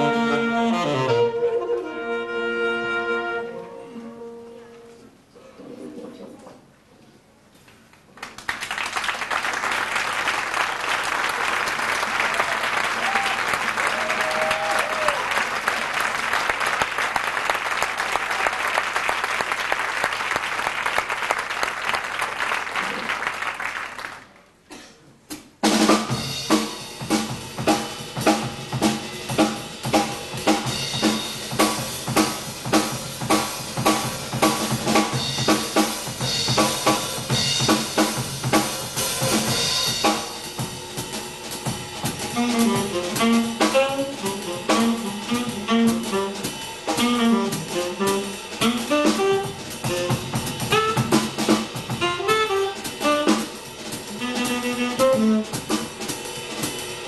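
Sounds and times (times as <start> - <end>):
big band playing: 0.0 - 5.2, 8.6 - 24.3, 25.3 - 57.0
audience applauding: 8.1 - 24.5
drum kit steady accented beat: 25.3 - 57.0.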